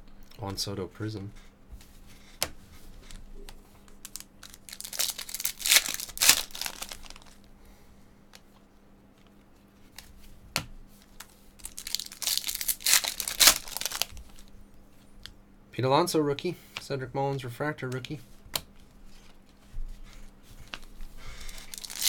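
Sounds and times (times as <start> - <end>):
foil wrapper tearing and crinkling: 4.0 - 7.4, 11.0 - 14.5, 21.4 - 22.0.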